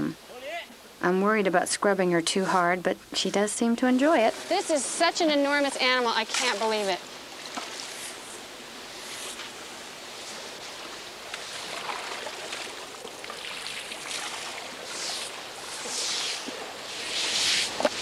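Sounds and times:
water splashing: 4.0 - 8.2, 8.8 - 18.0
river water washing: 4.0 - 18.0.

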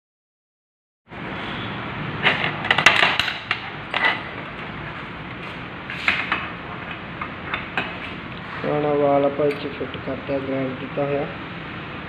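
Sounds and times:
steady background hiss: 1.2 - 12.0.

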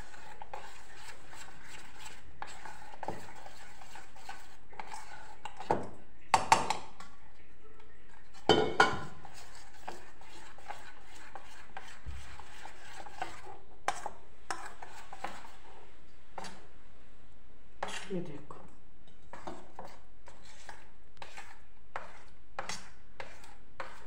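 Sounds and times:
spoon beating batter in bowl: 0.0 - 16.8, 17.8 - 24.0
spoon clinking against bowl: 8.5 - 9.2.

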